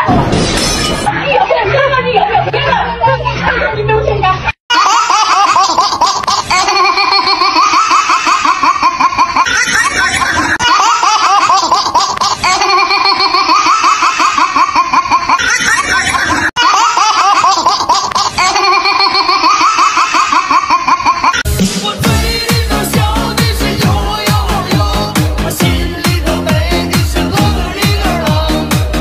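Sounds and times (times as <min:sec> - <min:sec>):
baby laughing: 0:04.7 - 0:21.5.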